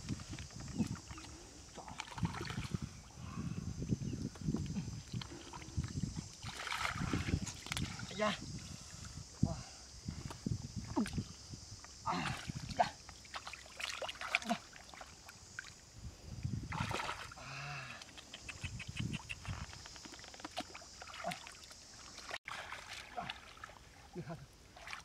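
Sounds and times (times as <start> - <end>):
splashing in muddy water: 0.3 - 3.0, 4.9 - 9.0, 12.0 - 15.8, 16.6 - 25.0.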